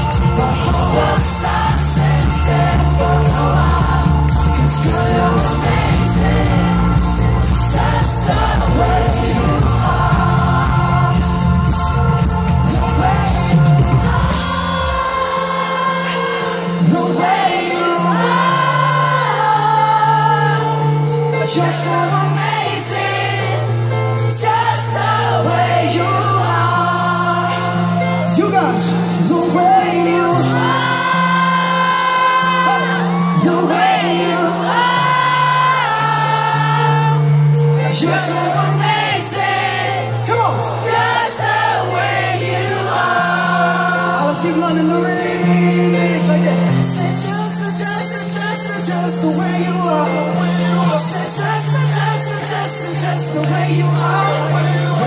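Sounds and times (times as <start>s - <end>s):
person singing: 0.0s - 7.1s, 43.5s - 55.0s
bass and drums: 0.0s - 15.3s
held keyboard chords: 0.0s - 55.0s
live pop band through pa: 0.0s - 55.0s.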